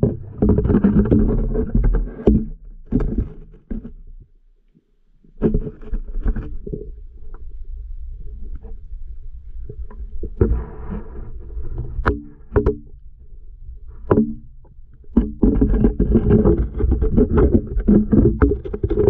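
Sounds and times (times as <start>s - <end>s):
sharp knocks underwater: 0.0s - 4.2s, 9.9s - 12.9s, 14.0s - 19.0s.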